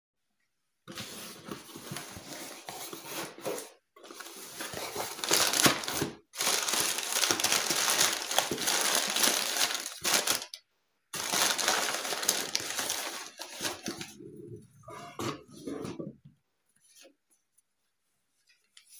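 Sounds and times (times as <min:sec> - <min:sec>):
packing paper crinkling: 0:00.9 - 0:10.6, 0:11.2 - 0:14.2.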